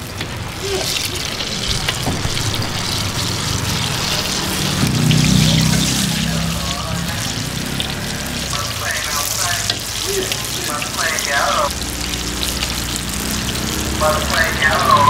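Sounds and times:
fritters sizzling in hot oil: 0:00.0 - 0:15.0.

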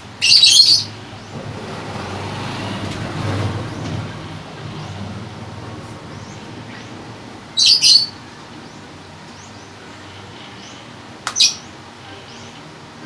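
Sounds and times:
high bird chirp: 0:00.0 - 0:01.4, 0:06.1 - 0:09.8, 0:10.6 - 0:12.6
motor vehicle passing: 0:00.0 - 0:11.8.

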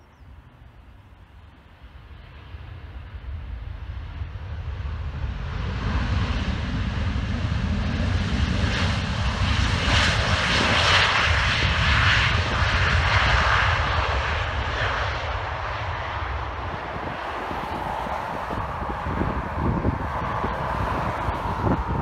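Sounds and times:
jet engines rushing: 0:00.0 - 0:22.0
low rumble: 0:15.2 - 0:22.0.

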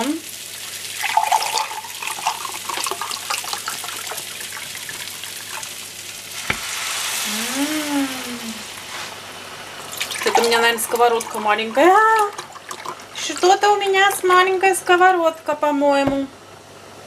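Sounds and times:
broth pouring into a pan: 0:00.0 - 0:14.0
rice frying in a pan: 0:00.0 - 0:14.6.

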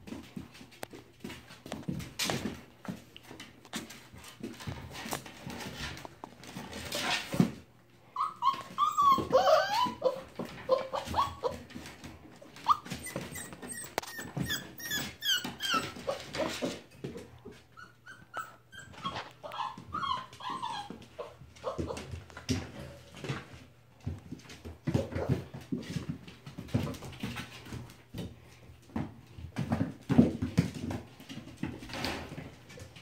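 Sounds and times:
paws clicking and scrabbling: 0:00.0 - 0:07.6, 0:08.4 - 0:33.0
puppies whimpering and yipping: 0:08.2 - 0:11.8, 0:12.5 - 0:16.8, 0:17.7 - 0:22.2.

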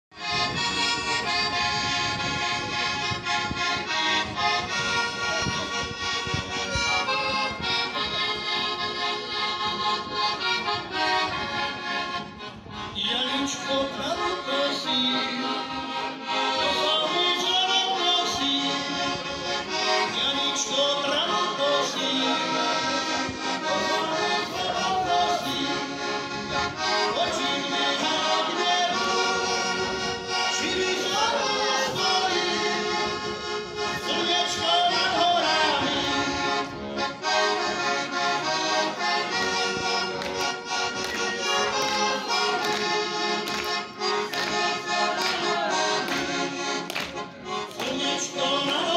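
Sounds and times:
button accordion playing folk tune: 0:00.1 - 0:48.9.

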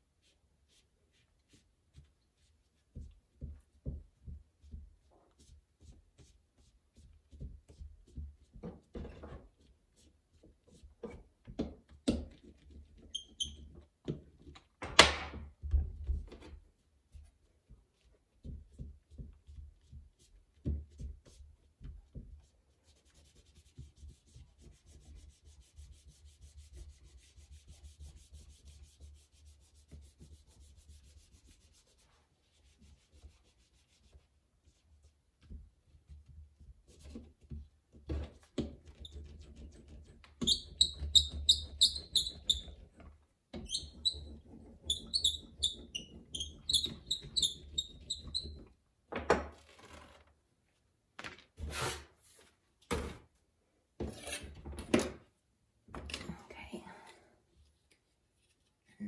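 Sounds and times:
faint steady scraping: 0:54.0 - 0:54.6.

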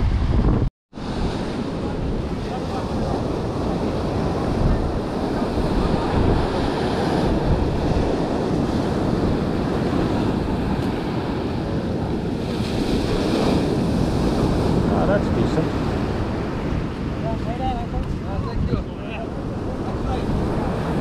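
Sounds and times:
ocean surf breaking: 0:00.0 - 0:21.0
wind buffeting microphone: 0:00.0 - 0:21.0.

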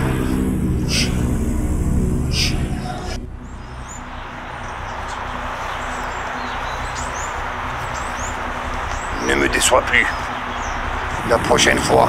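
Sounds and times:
low hum: 0:00.0 - 0:12.0
steady rushing hiss: 0:00.0 - 0:12.0
small birds chirping: 0:00.2 - 0:01.3, 0:02.3 - 0:12.0.

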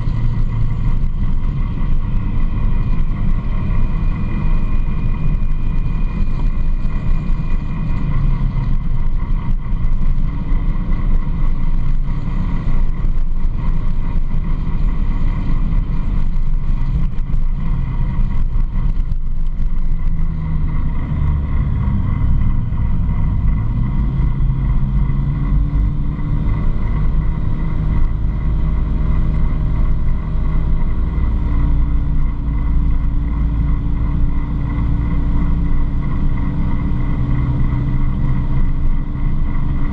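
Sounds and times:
vehicle engine drone: 0:00.0 - 0:39.9.

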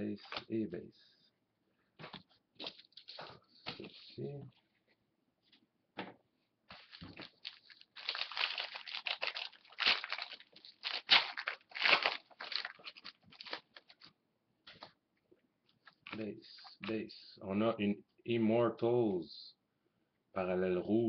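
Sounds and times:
foil wrapper crinkling and tearing: 0:06.8 - 0:14.1.

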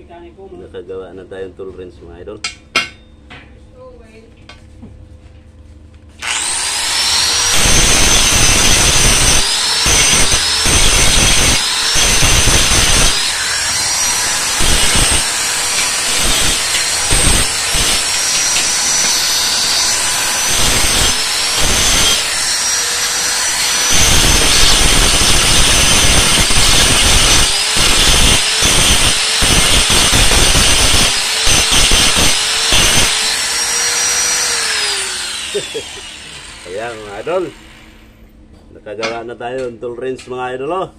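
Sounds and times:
angle grinder grinding steel: 0:06.2 - 0:38.2.

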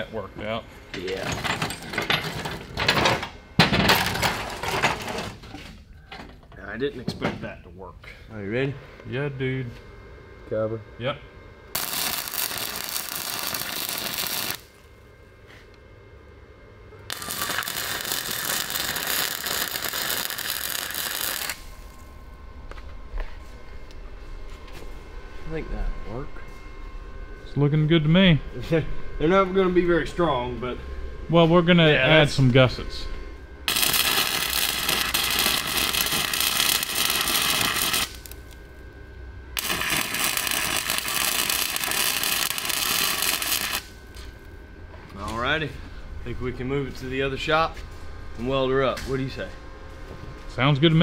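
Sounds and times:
welder arc crackling and sizzling: 0:03.8 - 0:05.4, 0:10.5 - 0:22.4, 0:33.6 - 0:44.6.

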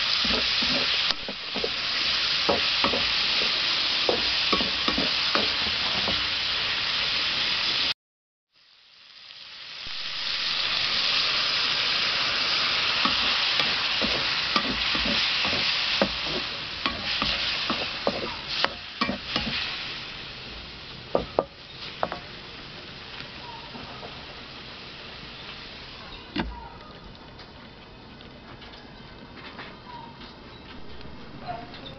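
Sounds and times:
spatula scraping a pan: 0:00.0 - 0:06.3, 0:12.8 - 0:19.8
food sizzling in a wok: 0:00.0 - 0:26.1.

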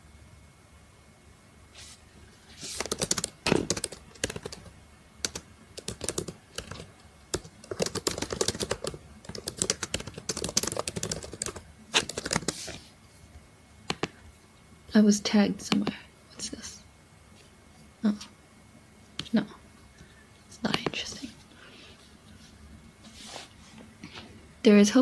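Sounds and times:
typing on laptop keyboard: 0:02.8 - 0:12.7.

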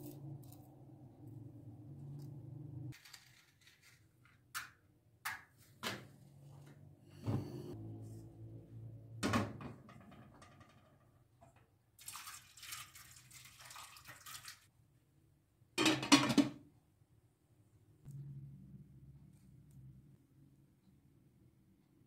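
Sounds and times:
water pouring into pot: 0:12.0 - 0:14.7.

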